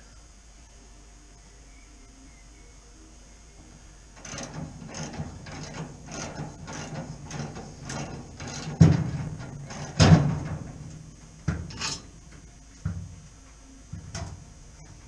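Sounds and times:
heavy metal part clunking: 4.2s - 13.2s, 13.9s - 15.0s.

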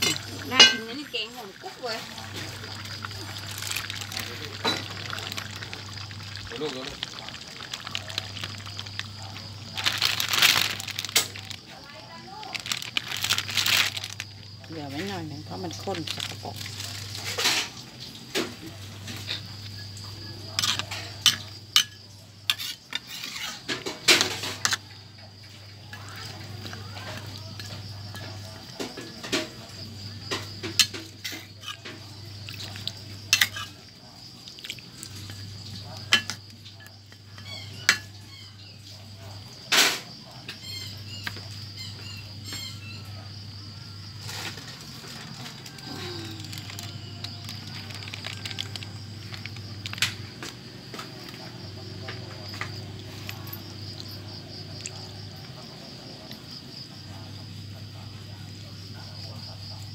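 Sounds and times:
metal spatula scraping wok: 0.0s - 1.3s, 20.6s - 24.8s
metal utensils scraping a wok: 0.0s - 5.7s, 20.5s - 24.9s, 30.3s - 33.8s.

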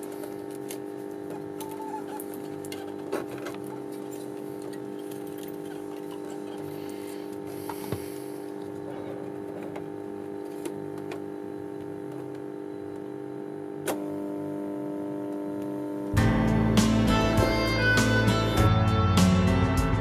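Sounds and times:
tape recorder hum: 0.0s - 20.0s
loud music: 16.2s - 20.0s.

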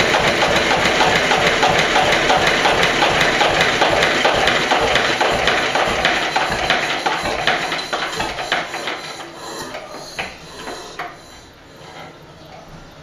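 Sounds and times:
diesel engine knocking slowing: 0.0s - 9.1s.

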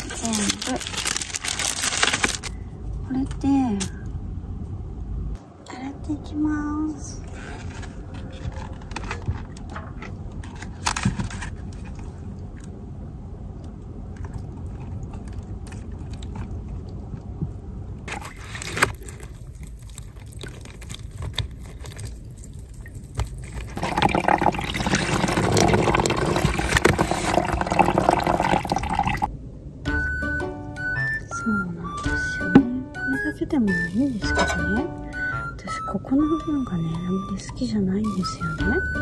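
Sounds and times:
low steady rumble: 0.0s - 39.0s
water pouring and splashing: 19.5s - 29.3s.

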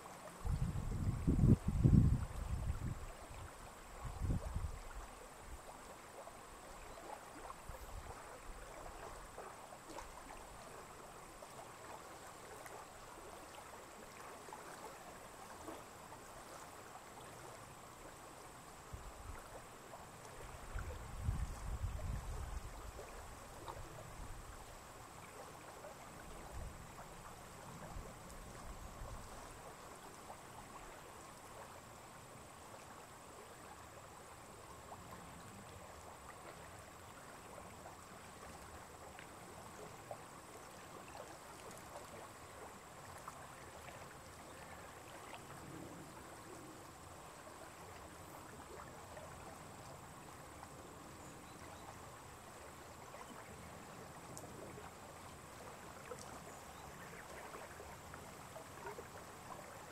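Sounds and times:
quiet hiss: 0.0s - 59.9s.

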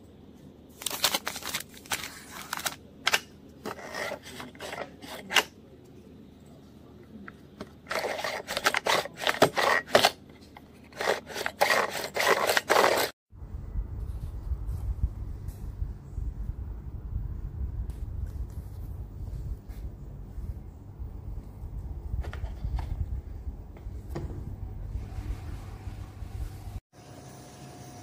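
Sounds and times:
paper packet crinkling: 0.7s - 3.2s, 10.9s - 13.2s.

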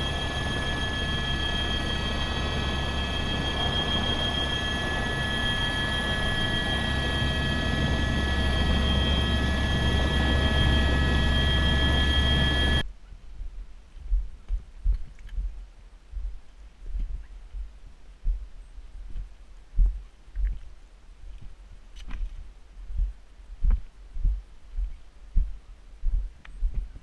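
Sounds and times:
helicopter turbine whine: 0.0s - 12.8s
low rotor drone: 0.0s - 19.1s.

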